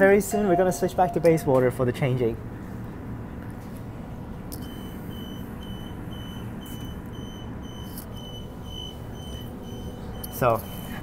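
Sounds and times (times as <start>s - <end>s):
train low hum: 0.0s - 11.0s
high electronic door warning beeps: 4.6s - 11.0s.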